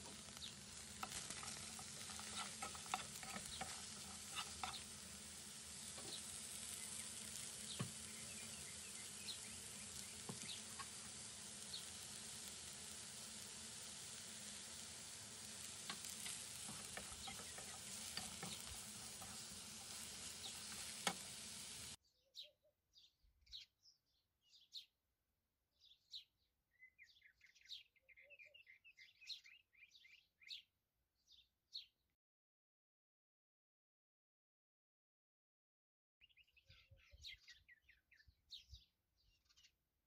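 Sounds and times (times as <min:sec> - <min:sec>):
mushrooms sizzling in a frying pan: 0:00.0 - 0:22.0.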